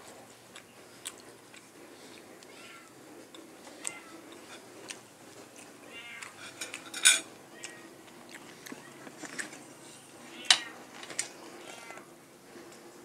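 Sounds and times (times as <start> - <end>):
cat meowing: 2.5 - 2.9, 5.9 - 6.4, 7.5 - 8.0, 11.6 - 12.1
cutlery clinking on plate: 6.4 - 7.3.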